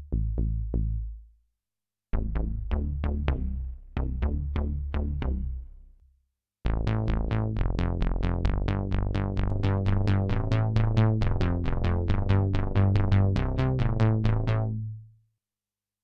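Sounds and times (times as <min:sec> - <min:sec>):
sawtooth bass pattern: 0:00.0 - 0:01.2, 0:02.2 - 0:06.0, 0:06.7 - 0:14.9
synthesizer bass notes: 0:02.2 - 0:05.9, 0:06.7 - 0:14.9.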